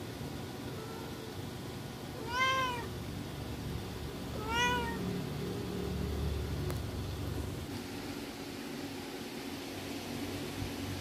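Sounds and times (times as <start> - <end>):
kitten meowing: 2.2 - 2.9, 4.3 - 5.1.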